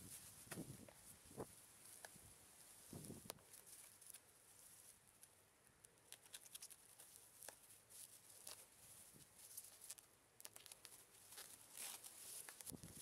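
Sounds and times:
bubble wrap crinkling: 6.0s - 13.0s.

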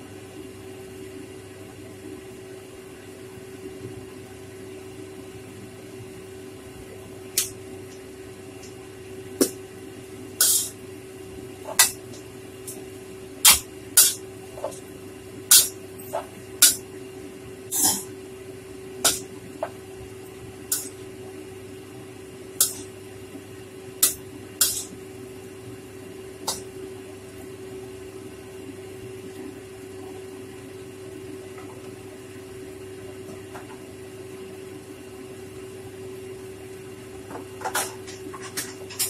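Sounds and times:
steady low hum: 0.0s - 39.0s
metal spatula scraping a wok: 10.4s - 10.7s, 24.6s - 24.9s.

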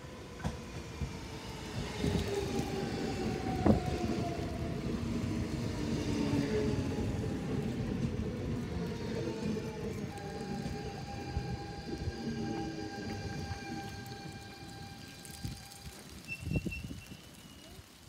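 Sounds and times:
rail rumble: 0.0s - 17.7s.

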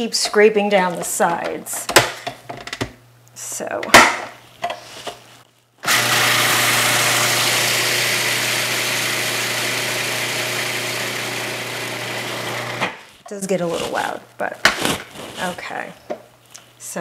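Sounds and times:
food processor motor running: 5.8s - 12.9s.

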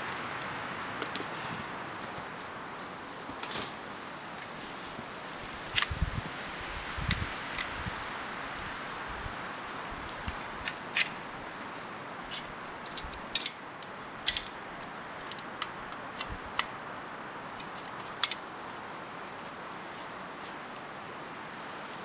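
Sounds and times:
outdoor hiss: 0.0s - 22.0s
bucksaw clicks and metallic ticks: 12.3s - 14.6s, 17.6s - 18.4s.

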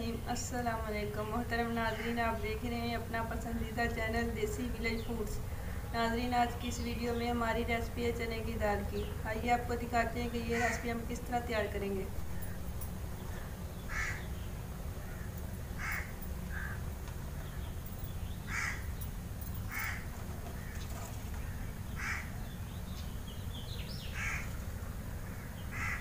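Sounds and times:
steady low rumble: 2.4s - 20.8s
crow cawing: 10.5s - 11.0s, 13.2s - 14.4s, 15.0s - 16.9s, 18.5s - 18.9s, 19.7s - 20.8s, 21.4s - 22.4s, 24.1s - 24.6s, 25.2s - 26.0s.

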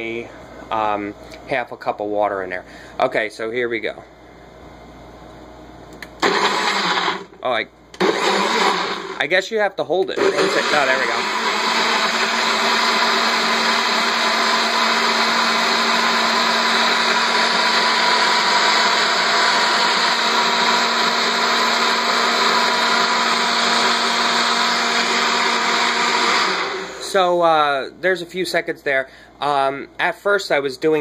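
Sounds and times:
blender running: 6.0s - 7.4s, 8.0s - 9.2s, 10.2s - 27.3s.

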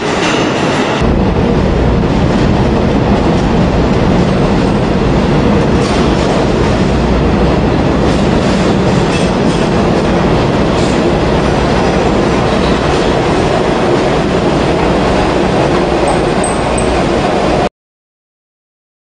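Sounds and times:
train wheels rumbling on track: 0.0s - 17.7s
wheels clacking over rail joints: 7.9s - 17.6s.

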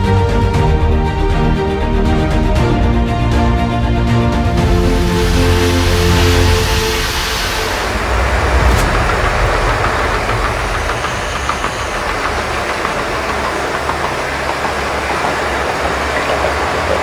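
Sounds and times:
low rumble: 0.4s - 15.3s
gas torch flames crackling: 4.6s - 16.4s.

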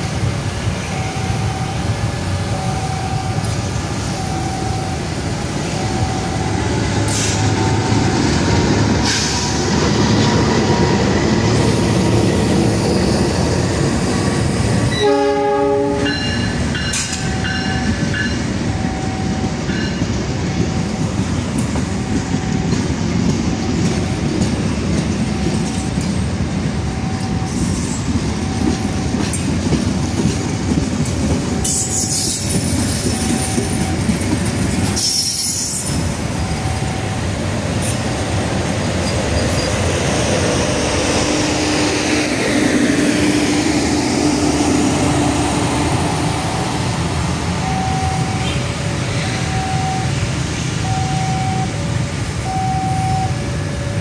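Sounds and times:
train rumbling past on rails: 0.0s - 54.0s
locomotive horn: 14.9s - 16.4s.

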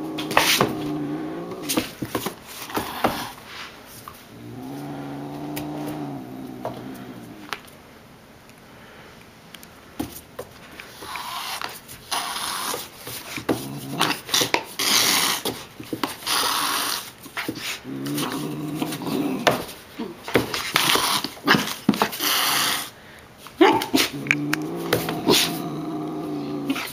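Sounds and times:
low growl: 0.0s - 1.9s, 4.3s - 7.6s, 17.8s - 20.1s, 24.1s - 26.9s
cat hissing: 0.0s - 2.0s, 2.6s - 3.7s, 4.3s - 7.5s, 10.9s - 15.5s, 16.2s - 19.7s, 20.8s - 22.9s, 23.6s - 26.9s.

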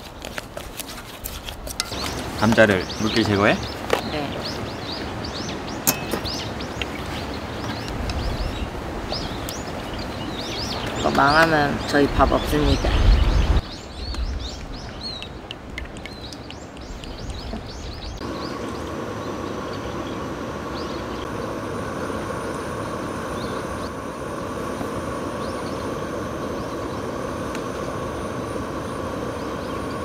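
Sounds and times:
birds chirping: 1.8s - 30.0s
mechanical drone: 17.2s - 30.0s.

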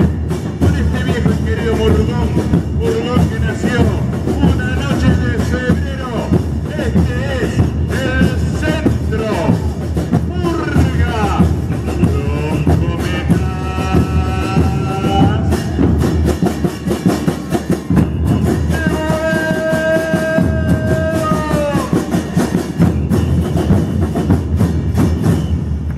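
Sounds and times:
bass drums beating fast rhythm: 0.0s - 25.8s.

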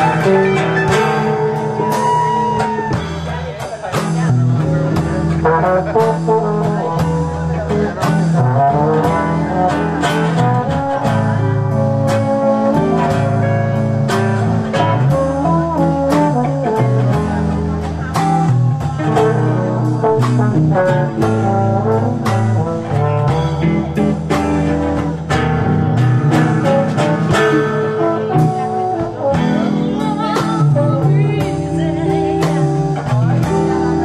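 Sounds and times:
guitar plucking steady beat: 0.0s - 34.0s
brass horn playing held notes: 26.9s - 30.5s.

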